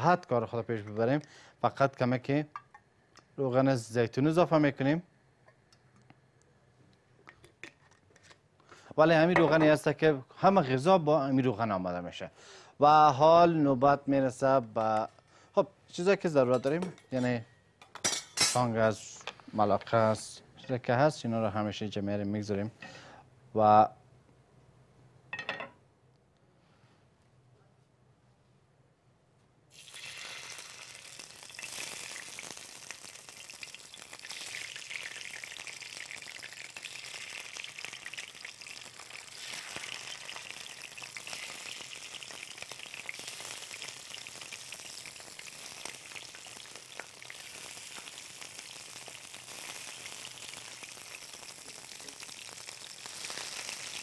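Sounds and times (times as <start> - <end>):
fish sizzling in hot oil: 29.7 - 54.0.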